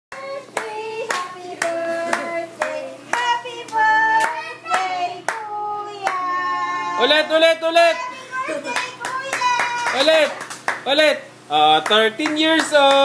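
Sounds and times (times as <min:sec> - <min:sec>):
people singing: 0:00.1 - 0:07.3
people clapping in time: 0:08.8 - 0:10.9, 0:11.8 - 0:13.0.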